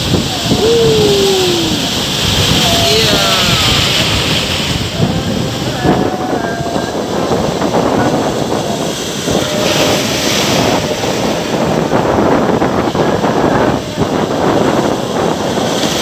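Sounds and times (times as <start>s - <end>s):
surf breaking on rocky shore: 0.0s - 16.0s
wind buffeting microphone: 0.0s - 16.0s.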